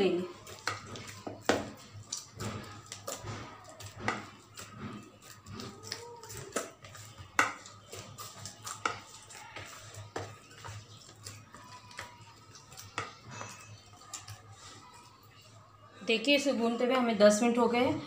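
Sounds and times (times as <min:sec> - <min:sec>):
dough slapping in bowl: 0:00.0 - 0:15.6.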